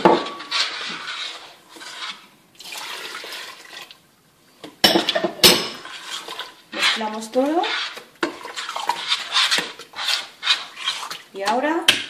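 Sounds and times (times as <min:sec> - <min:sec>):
water pouring into a pot: 0:02.6 - 0:04.0.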